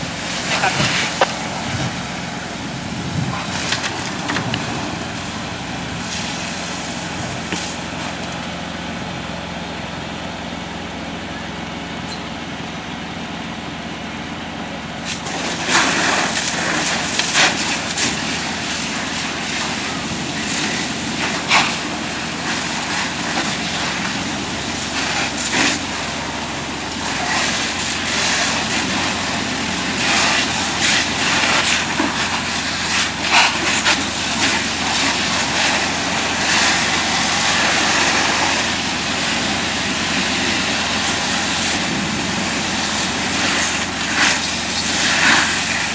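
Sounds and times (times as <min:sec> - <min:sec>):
fire crackling: 0:00.0 - 0:08.5, 0:15.2 - 0:26.1, 0:29.9 - 0:45.9
low engine hum: 0:00.0 - 0:45.9
hissing fire hose spray: 0:15.0 - 0:26.2, 0:26.8 - 0:45.9.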